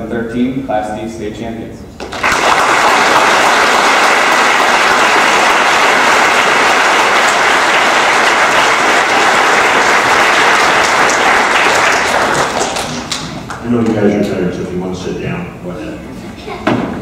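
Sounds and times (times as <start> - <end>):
large crowd applauding: 2.0 - 13.9.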